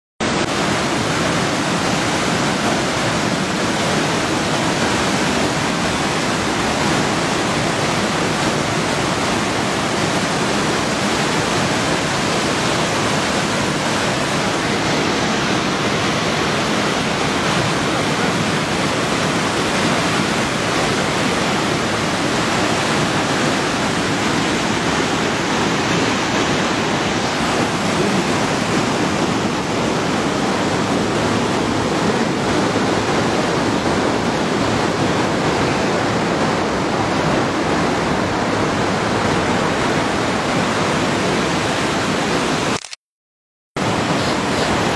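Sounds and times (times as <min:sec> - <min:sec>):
waterfall and stream rushing: 0:00.2 - 0:43.0, 0:43.8 - 0:44.9.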